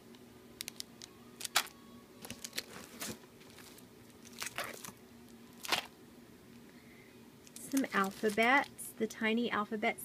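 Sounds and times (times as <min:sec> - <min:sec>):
faint steady hum: 0:00.0 - 0:10.0
plastic packaging crinkling: 0:00.6 - 0:05.9, 0:07.5 - 0:08.8.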